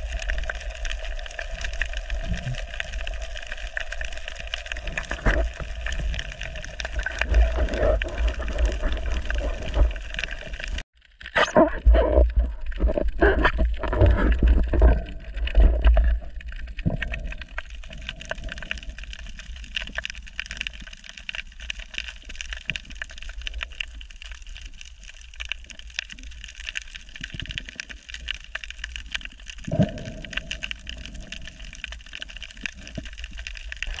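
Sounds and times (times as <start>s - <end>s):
low knocks and water rumbles: 4.6s - 10.8s, 11.6s - 18.6s.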